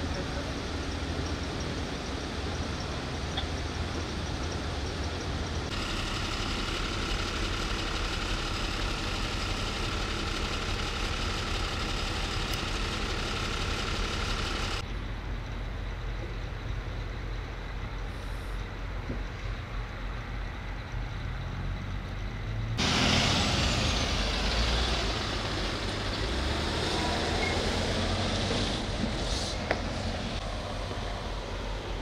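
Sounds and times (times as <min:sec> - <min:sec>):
vehicle engine idling: 0:00.0 - 0:32.0
hiss: 0:28.6 - 0:29.7.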